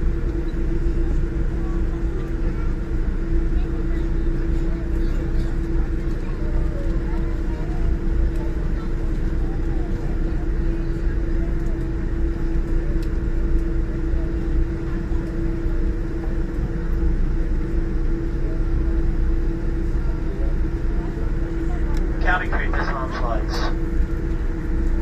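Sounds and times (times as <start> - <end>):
constant hum: 0.0 - 25.0
low cabin rumble: 0.0 - 25.0
faint passenger murmur: 0.3 - 25.0.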